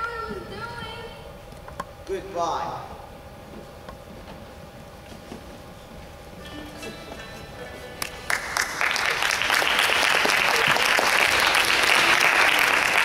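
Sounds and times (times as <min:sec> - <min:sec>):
audience applauding: 0:08.0 - 0:13.0.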